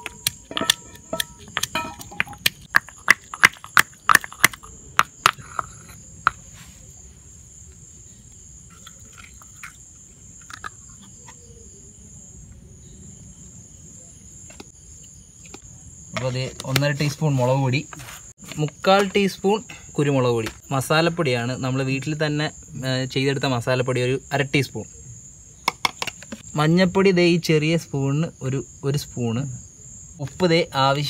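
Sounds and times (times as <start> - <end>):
stone pestle pounding in mortar: 0.0 - 5.7
high insect chirring: 0.0 - 31.0.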